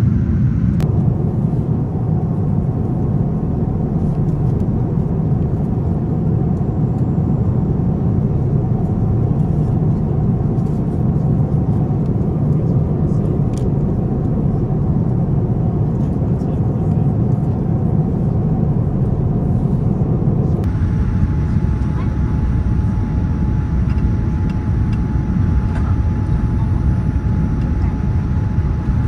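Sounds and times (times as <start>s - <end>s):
jet airliner cabin rumble: 0.0s - 29.0s.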